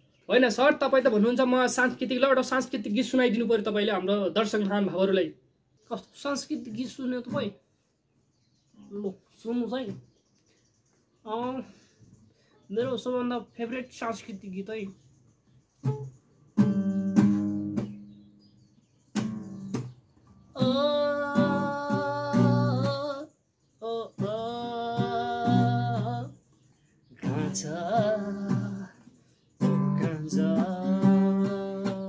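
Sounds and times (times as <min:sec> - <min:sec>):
strummed acoustic guitar: 0:15.5 - 0:23.2, 0:23.8 - 0:26.5, 0:27.2 - 0:32.0
man singing: 0:20.6 - 0:26.4, 0:27.2 - 0:32.0.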